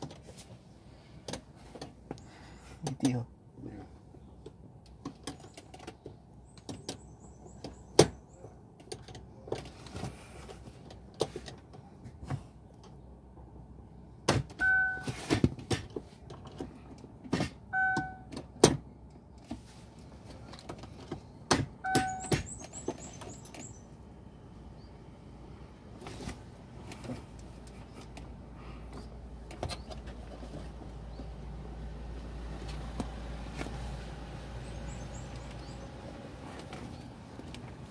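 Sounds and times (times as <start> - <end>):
short beeps: 14.6 - 15.2, 17.8 - 18.3.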